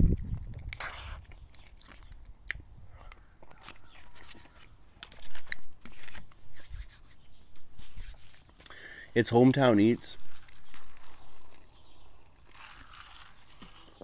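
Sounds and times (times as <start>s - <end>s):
person chewing food: 1.6s - 4.5s.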